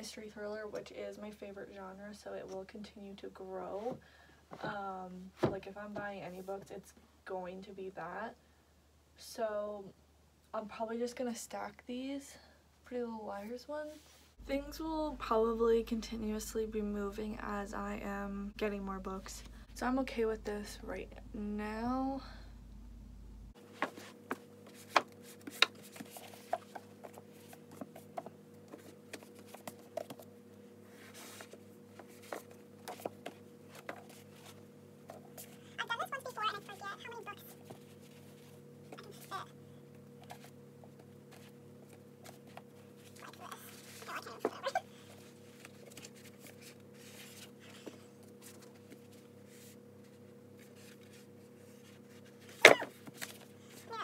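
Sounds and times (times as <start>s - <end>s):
faint steady hum: 0.0s - 54.0s
low hum: 14.4s - 23.6s
books rustling and tapping: 23.6s - 35.6s, 40.2s - 53.8s
books knocking and scuffing: 23.7s - 30.2s.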